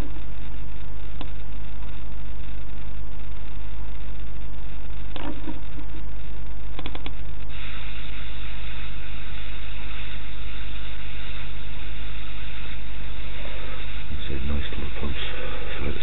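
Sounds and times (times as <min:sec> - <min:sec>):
faint electrical hum: 0:00.0 - 0:16.0
low rumble and hiss: 0:00.0 - 0:16.0
soft clicks: 0:06.8 - 0:07.2.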